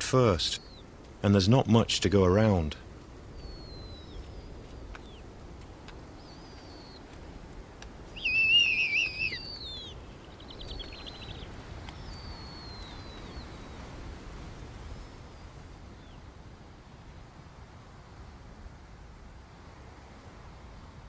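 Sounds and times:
owlets whistled peeps: 6.2s - 7.0s, 8.2s - 13.8s
loud wavering owl call: 8.2s - 13.8s.

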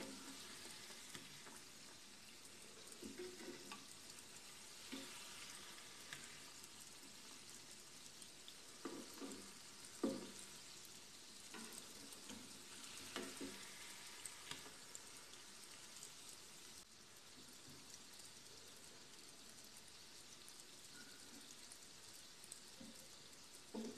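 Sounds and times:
oil sizzling: 0.0s - 23.9s
spoon knocking against pan: 8.8s - 10.4s.

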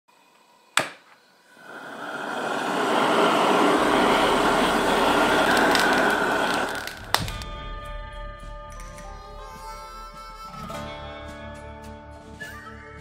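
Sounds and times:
gas torch flame rushing: 1.5s - 7.5s.

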